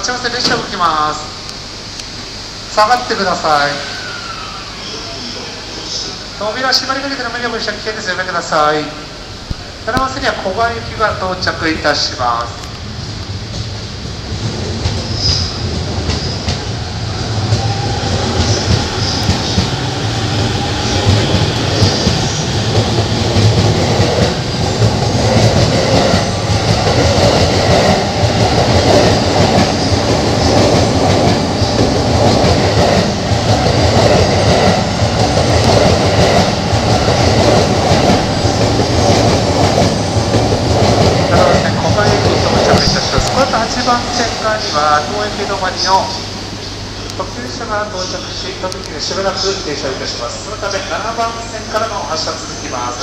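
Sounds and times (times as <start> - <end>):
train wheels on rails: 9.2 - 53.0
high wheel squeals: 15.0 - 22.7.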